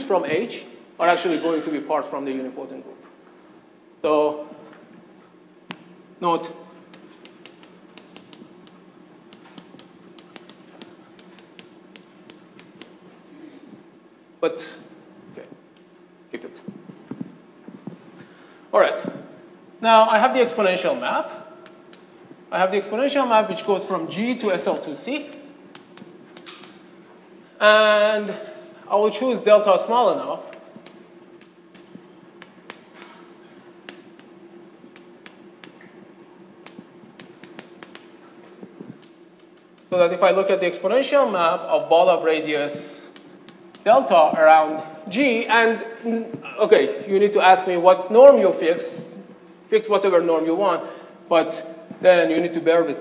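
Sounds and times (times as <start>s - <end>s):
faint room hum: 0.0s - 53.0s
chalk tapping on blackboard: 6.7s - 13.0s, 25.7s - 26.8s, 30.8s - 40.0s, 41.8s - 44.4s.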